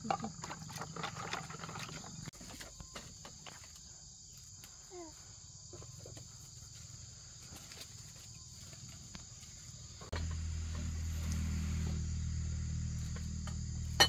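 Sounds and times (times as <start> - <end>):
crickets chirring: 0.0 - 14.0
low steady hum: 9.9 - 14.0.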